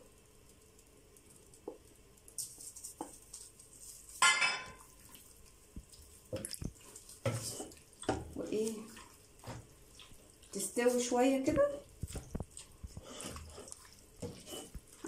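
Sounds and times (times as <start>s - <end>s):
soft wet stirring: 0.4s - 15.0s
spatula scraping plate: 12.9s - 14.8s.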